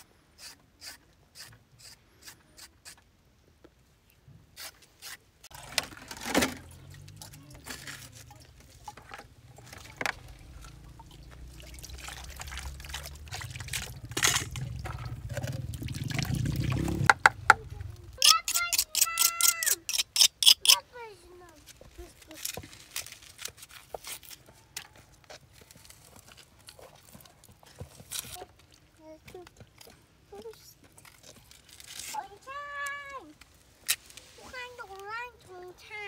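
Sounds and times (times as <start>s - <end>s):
water running into plastic basin: 5.5s - 17.2s.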